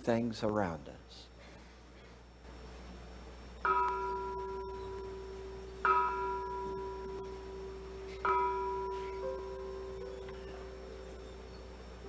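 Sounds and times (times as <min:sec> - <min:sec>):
meditation bell ringing: 0:03.6 - 0:11.6.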